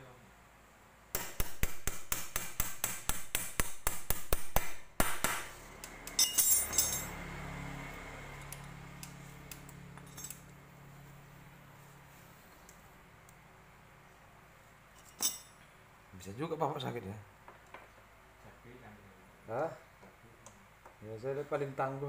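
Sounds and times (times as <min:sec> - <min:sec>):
light metal clinks: 0:06.1 - 0:07.2, 0:09.9 - 0:10.6, 0:14.9 - 0:15.6.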